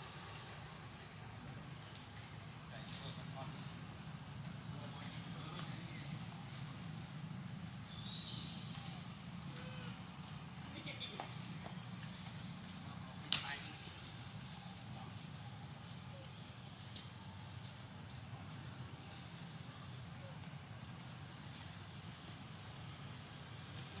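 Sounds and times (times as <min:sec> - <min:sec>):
insects droning: 0:00.0 - 0:24.0.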